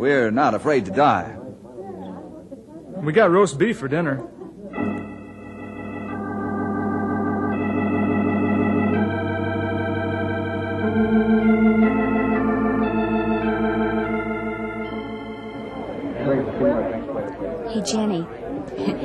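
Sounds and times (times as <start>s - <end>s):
organ chords with tremolo: 4.7s - 17.6s.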